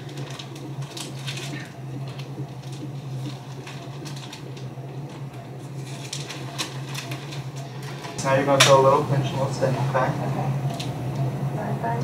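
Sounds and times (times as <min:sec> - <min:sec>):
room equipment hum: 0:00.0 - 0:12.0
plastic drape crinkling: 0:05.8 - 0:08.2.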